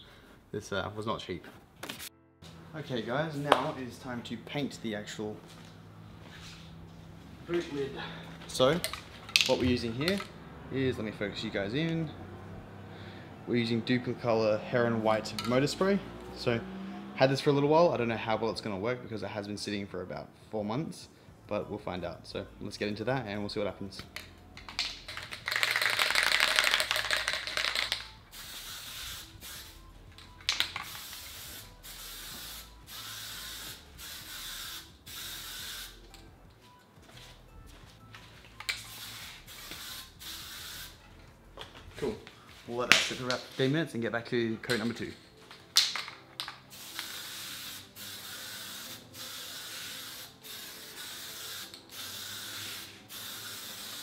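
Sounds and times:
spray paint can hissing: 0:24.7 - 0:29.8, 0:30.5 - 0:36.0, 0:38.7 - 0:41.0, 0:46.4 - 0:54.0.

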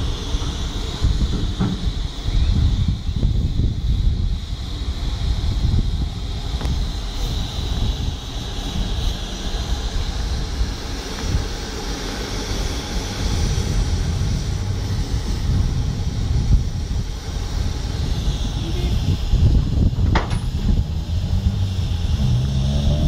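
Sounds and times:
low uneven rumble: 0:00.0 - 0:23.0
steam hissing: 0:00.0 - 0:23.0.

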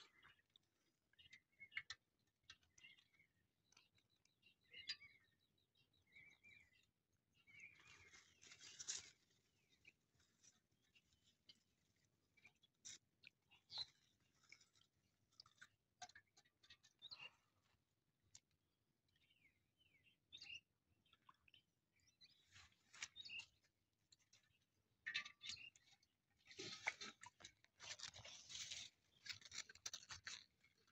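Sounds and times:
small water splashes: 0:07.7 - 0:18.5, 0:24.2 - 0:30.9
wet crackles: 0:26.5 - 0:30.9.

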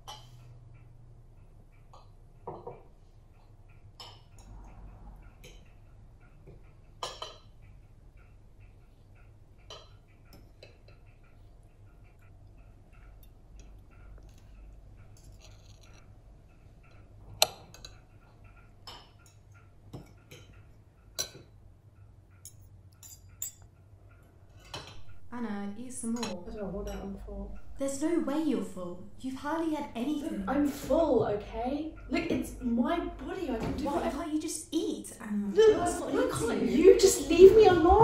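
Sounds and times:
low room hum: 0:00.0 - 0:38.0
cutlery clinking on a plate: 0:07.0 - 0:07.6, 0:22.4 - 0:23.7.

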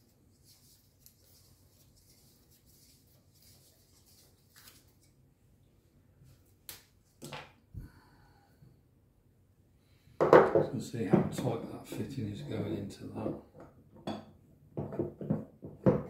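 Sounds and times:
tools knocking on wooden workbench: 0:10.2 - 0:11.4, 0:13.2 - 0:16.0.

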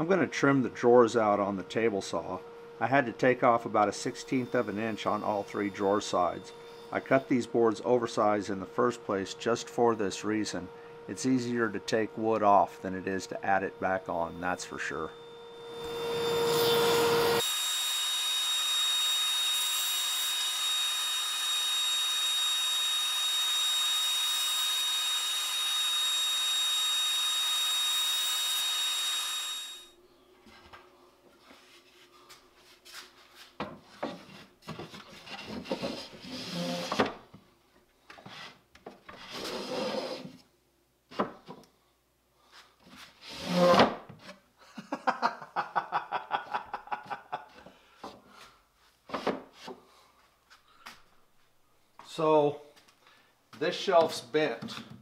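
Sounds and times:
table saw whining: 0:00.0 - 0:30.0, 0:35.3 - 0:37.2, 0:39.1 - 0:40.4, 0:43.2 - 0:44.0
wooden drawers rubbing and knocking: 0:38.2 - 0:40.4.

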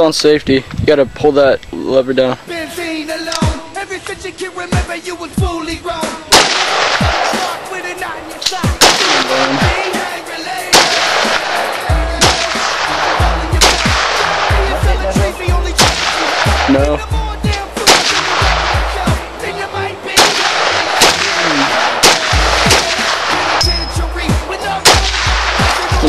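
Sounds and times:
music with heavy bass beat: 0:03.1 - 0:26.0
rifle shots: 0:06.3 - 0:08.0, 0:08.6 - 0:15.0, 0:15.8 - 0:16.8, 0:17.5 - 0:19.3, 0:20.1 - 0:26.0.

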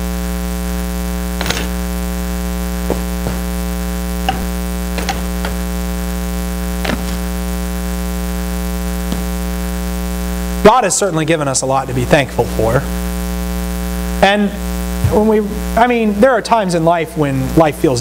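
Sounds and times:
electrical mains hum: 0:00.0 - 0:18.0
book and papers handled: 0:06.8 - 0:07.3.

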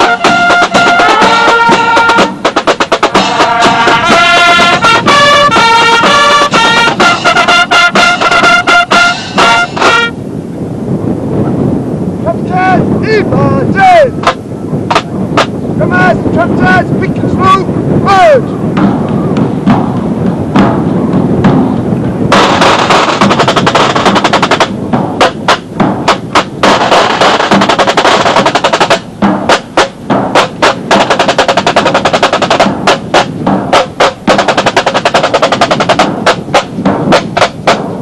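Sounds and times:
snare drum rolls: 0:00.0 - 0:10.1, 0:18.8 - 0:38.0
bass drum: 0:18.7 - 0:38.0.

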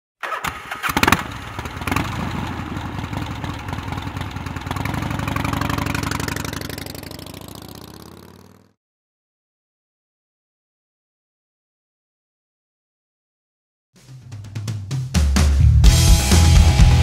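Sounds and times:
motorcycle engine starting and idling: 0:00.2 - 0:08.8.

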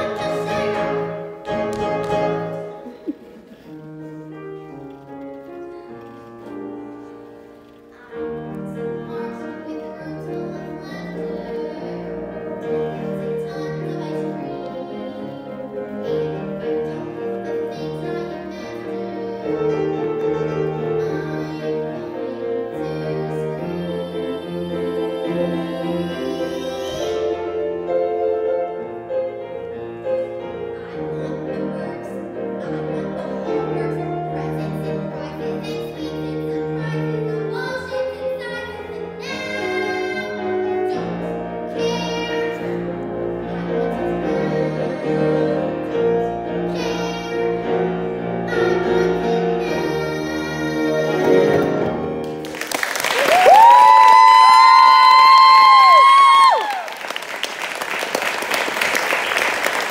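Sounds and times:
girl singing: 0:00.0 - 0:01.2, 0:07.6 - 0:28.0, 0:30.0 - 0:52.0
grand piano accompaniment: 0:00.0 - 0:59.9.

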